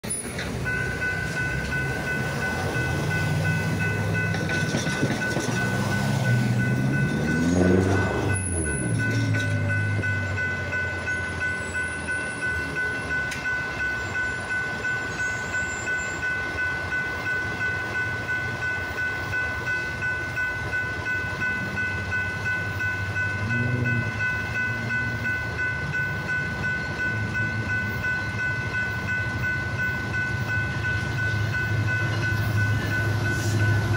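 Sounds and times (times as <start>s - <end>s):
crossing warning bell ringing: 0.0s - 33.9s
diesel locomotive rumble: 0.0s - 33.9s
engine passing by: 5.2s - 11.4s.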